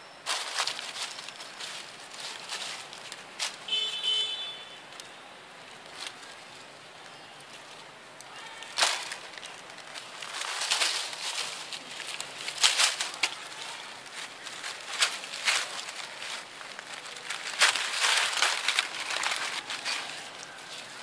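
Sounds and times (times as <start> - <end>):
dry leaves crunching and rustling: 0.2 - 21.0.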